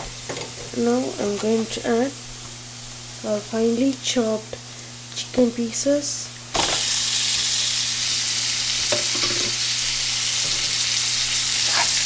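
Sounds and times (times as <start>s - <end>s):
chicken sizzling in hot oil: 6.5s - 12.0s.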